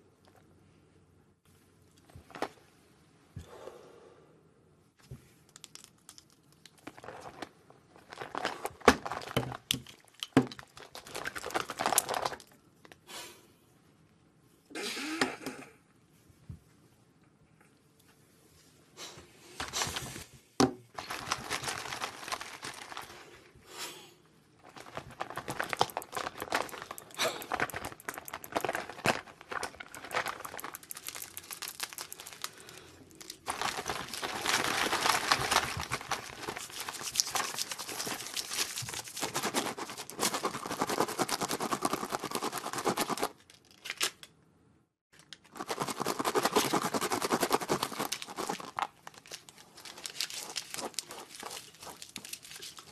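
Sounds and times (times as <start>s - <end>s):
packaging crinkling and tearing: 5.5s - 12.6s, 21.0s - 23.5s, 24.6s - 44.3s, 45.2s - 52.9s.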